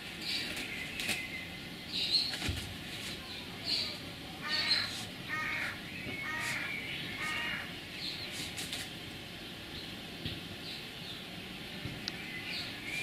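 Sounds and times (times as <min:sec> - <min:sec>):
small birds chirping faintly: 0:00.0 - 0:13.0
bird harsh calls: 0:03.2 - 0:08.6.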